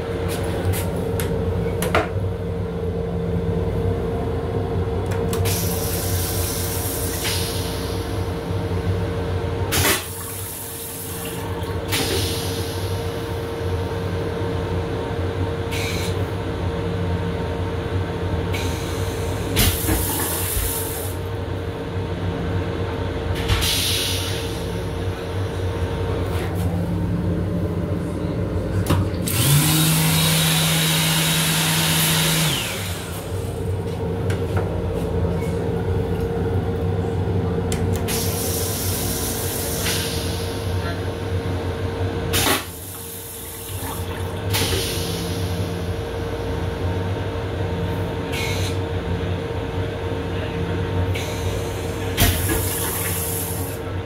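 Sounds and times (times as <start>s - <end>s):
train running hum and rumble: 0.0s - 54.0s
toilet flush water: 9.7s - 13.0s, 42.4s - 45.5s, 51.2s - 53.9s.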